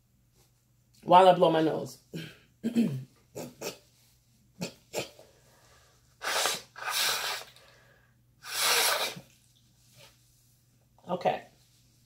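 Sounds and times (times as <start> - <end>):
woman blowing her nose: 6.2 - 7.6, 8.4 - 9.4.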